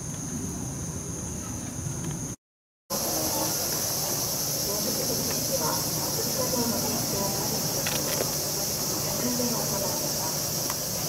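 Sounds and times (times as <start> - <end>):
night insects singing: 0.0 - 11.0
faint voices: 2.9 - 11.0.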